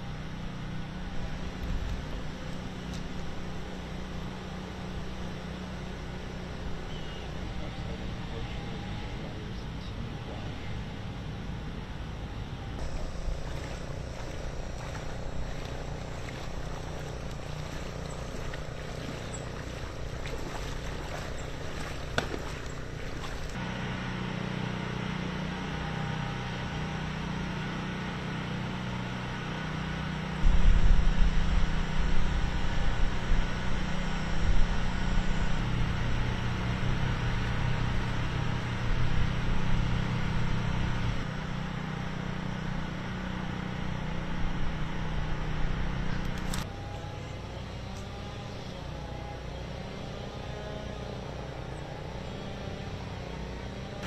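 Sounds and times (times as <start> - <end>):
motor humming: 10.5 - 23.6.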